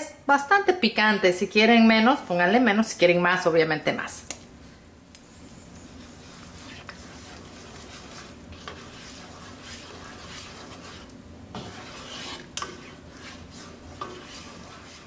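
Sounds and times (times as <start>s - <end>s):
spatula stirring and scraping sauce: 5.3s - 15.0s.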